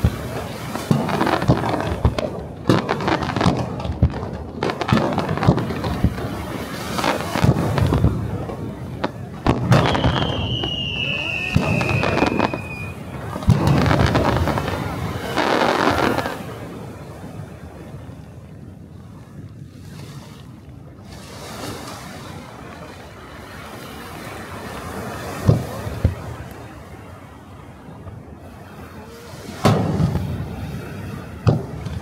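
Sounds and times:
fireworks crackling: 0.0s - 17.7s, 21.2s - 27.2s, 27.9s - 32.0s
firework whistle falling in pitch: 9.7s - 13.1s.

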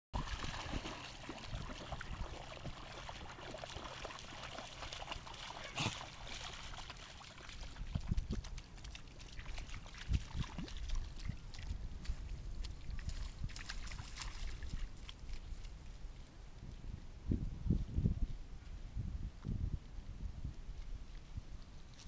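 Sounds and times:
dogs splashing in water: 0.2s - 15.8s.

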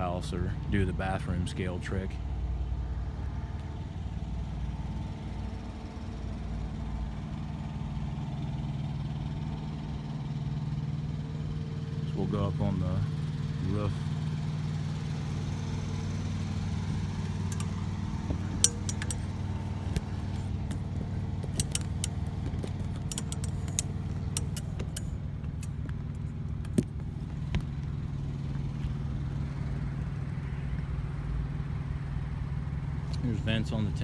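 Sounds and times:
low engine-like hum: 0.0s - 34.0s
metallic clicks and knocks on ladder: 17.3s - 26.9s.

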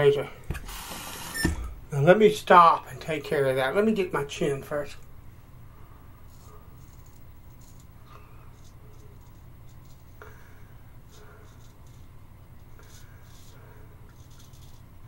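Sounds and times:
steady low hum: 0.0s - 15.0s
razor scraping stubble: 6.3s - 15.0s.

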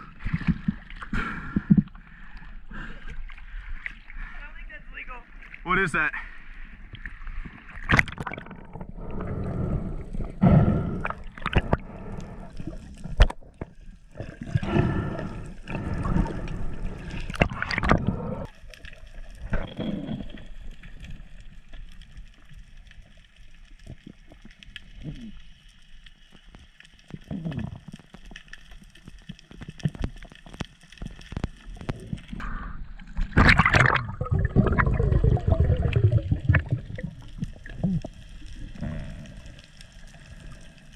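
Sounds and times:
underwater gurgling and bubbling: 0.0s - 4.3s, 6.6s - 40.9s
seawater sloshing and splashing: 33.2s - 37.0s.

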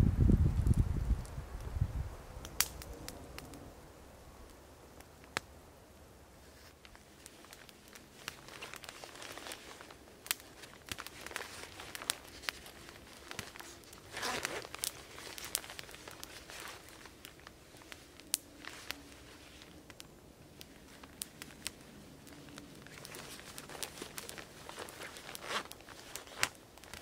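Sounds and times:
campfire crackling and popping: 0.2s - 27.0s
sticks rustling and crunching: 6.4s - 27.0s.

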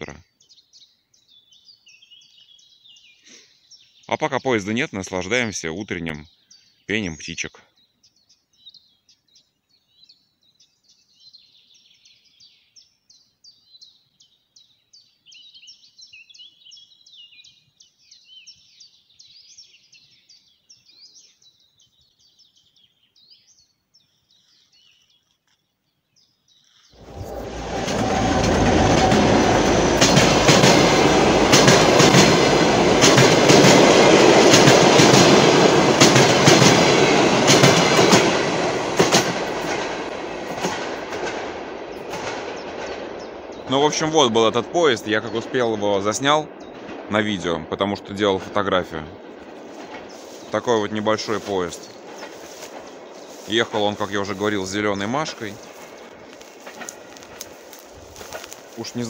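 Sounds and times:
small birds chirping: 0.0s - 59.0s
train wheels clicking on rail joints: 27.0s - 43.7s, 55.6s - 59.0s
diesel train passing: 27.0s - 59.0s.

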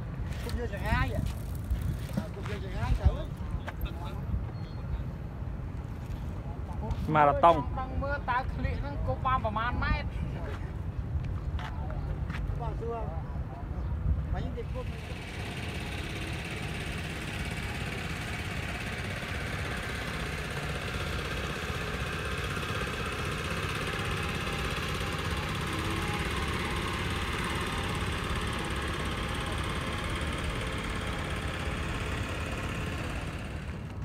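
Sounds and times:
boat engine running: 14.7s - 34.0s.

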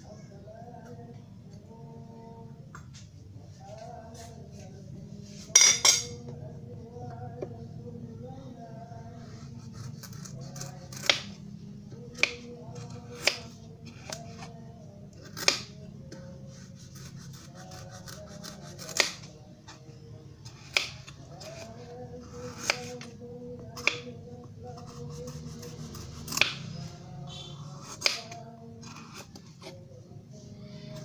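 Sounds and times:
knife peeling squash: 16.5s - 19.2s, 20.6s - 23.0s.

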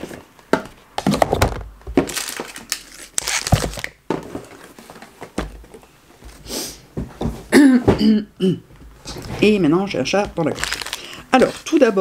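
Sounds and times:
knocks and clicks of items: 0.0s - 2.2s
packaging rustling: 1.9s - 5.3s, 10.4s - 11.8s.

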